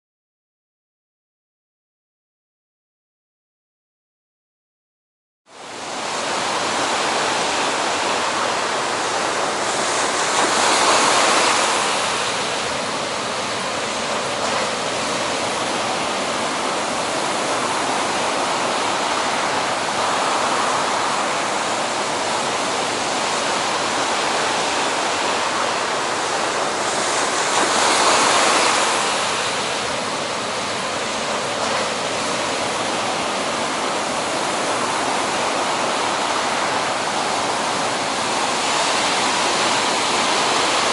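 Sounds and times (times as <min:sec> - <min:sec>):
ocean surf breaking: 0:05.5 - 0:40.9.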